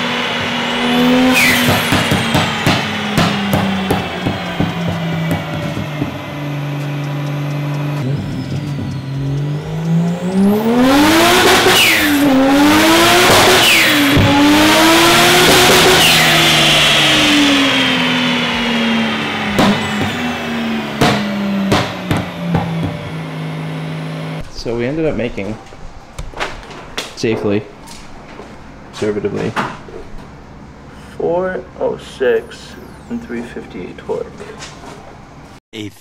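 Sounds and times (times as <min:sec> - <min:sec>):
car engine revving: 0:00.0 - 0:24.4.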